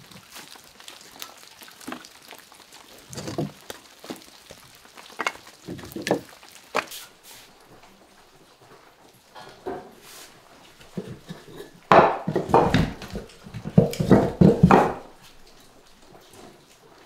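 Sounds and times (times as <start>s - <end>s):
faint steady hiss: 0.0s - 17.0s
firewood knocking on wooden boards: 3.1s - 3.6s, 5.2s - 6.9s, 10.9s - 15.2s.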